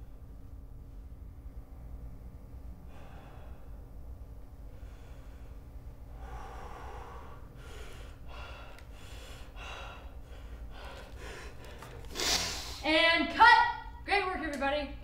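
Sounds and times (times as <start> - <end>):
man breathing heavily and gasping: 2.8 - 4.0, 4.7 - 12.8.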